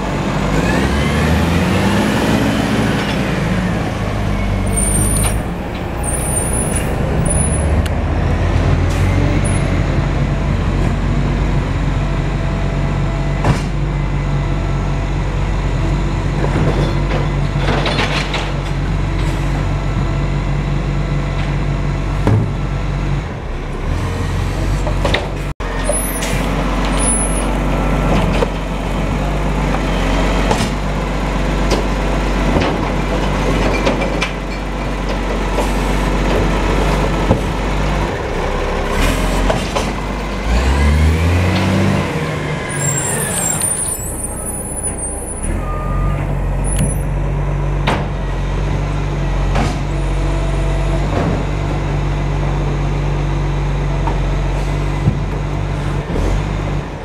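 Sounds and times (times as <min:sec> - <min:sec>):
diesel truck engine running: 0:00.0 - 0:57.0
air brakes hissing: 0:42.7 - 0:46.1.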